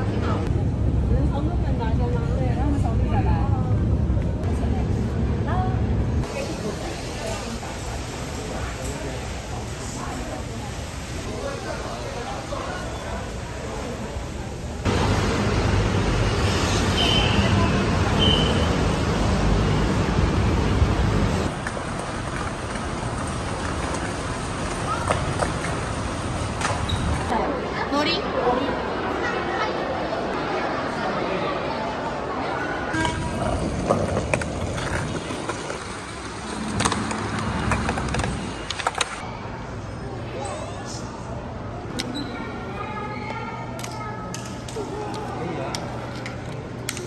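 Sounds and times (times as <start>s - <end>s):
busy city street traffic: 0.0s - 40.3s
cars and scooters passing: 14.8s - 27.3s, 32.9s - 39.2s
skateboard wheels rolling on stone: 20.8s - 27.3s, 33.0s - 39.2s.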